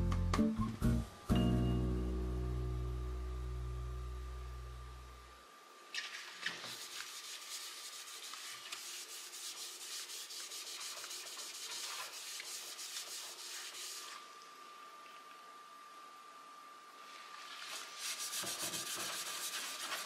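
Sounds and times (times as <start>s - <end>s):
sponge scrubbing steel pot: 6.7s - 14.2s, 17.4s - 20.0s.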